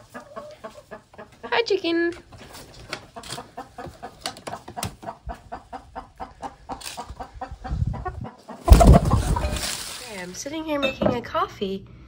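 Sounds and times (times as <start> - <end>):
hen clucking: 0.0 - 10.2
wings flapping: 8.6 - 10.4.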